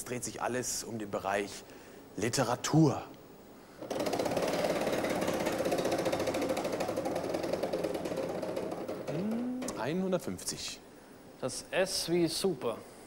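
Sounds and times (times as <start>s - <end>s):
prize wheel clicking rapidly: 3.8s - 9.9s.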